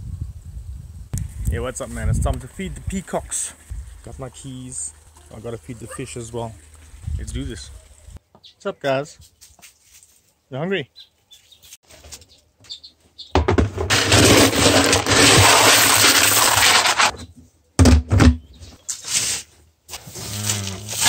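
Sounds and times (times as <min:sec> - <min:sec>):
plastic tub knocks: 0:13.4 - 0:14.0, 0:17.8 - 0:18.4
corn kernels rushing and rattling: 0:13.6 - 0:17.1, 0:19.1 - 0:21.0.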